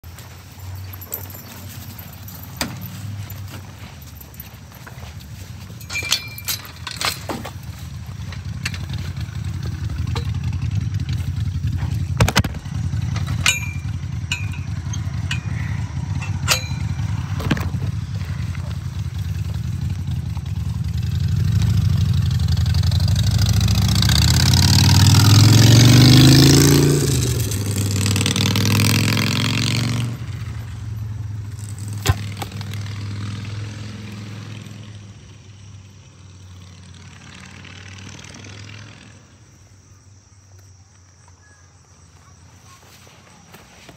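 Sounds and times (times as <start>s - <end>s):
motor engine running: 0.0s - 34.9s.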